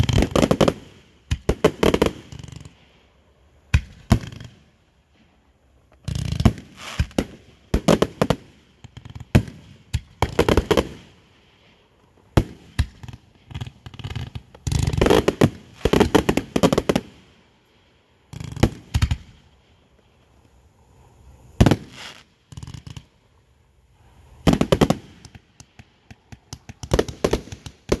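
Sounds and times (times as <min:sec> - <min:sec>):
rapid sharp pops and cracks: 0:05.9 - 0:11.0, 0:12.4 - 0:17.2, 0:18.3 - 0:19.4, 0:24.5 - 0:28.0.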